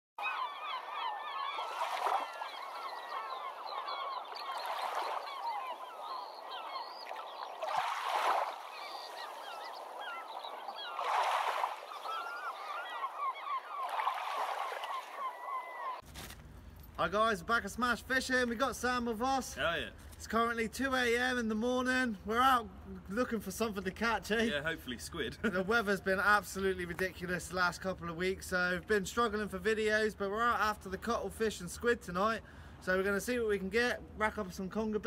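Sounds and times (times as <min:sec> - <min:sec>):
flock of birds calling: 0:00.2 - 0:16.0.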